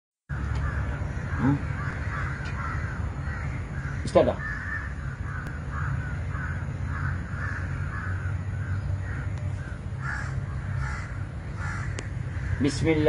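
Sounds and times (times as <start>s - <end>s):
crows cawing: 0.3s - 13.0s
steady low rumble: 0.3s - 13.0s.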